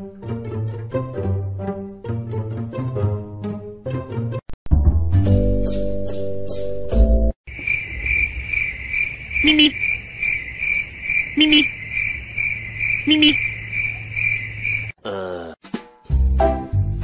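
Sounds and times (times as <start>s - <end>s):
pizzicato string music: 0.0s - 7.3s, 15.6s - 17.0s
high cricket-like chirping: 7.5s - 15.0s.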